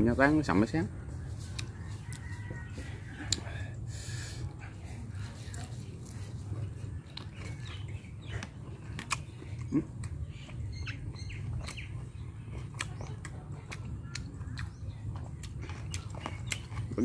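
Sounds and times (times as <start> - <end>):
birds chirping: 0.0 - 17.0
person chewing: 1.3 - 17.0.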